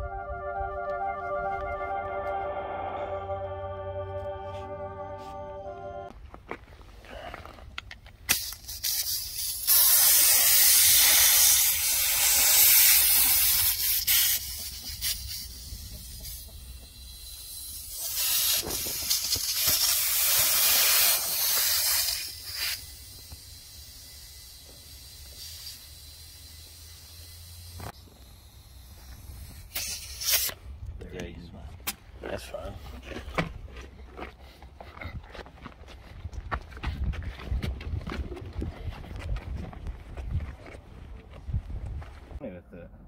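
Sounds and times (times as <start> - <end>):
compressed air hissing: 8.3 - 30.6.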